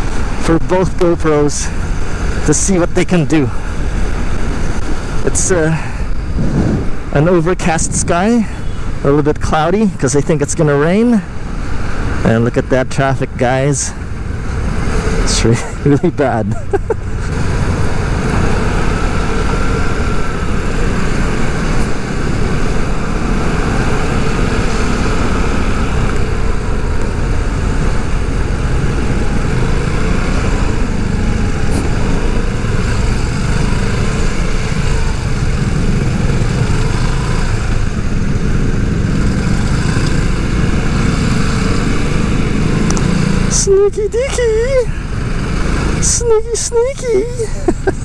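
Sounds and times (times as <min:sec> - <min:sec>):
wind rumble on microphone: 0:06.0 - 0:09.0
scooter engine whine: 0:16.6 - 0:46.0.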